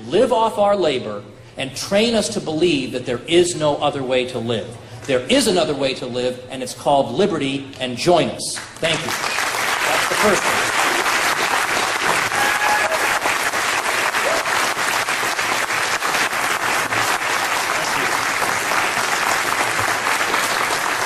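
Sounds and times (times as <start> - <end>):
audience applauding: 8.8 - 21.0.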